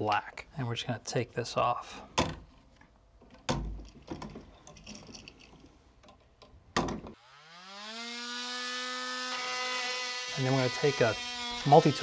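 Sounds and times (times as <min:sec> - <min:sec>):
oscillating multi-tool whine: 0:07.2 - 0:12.0.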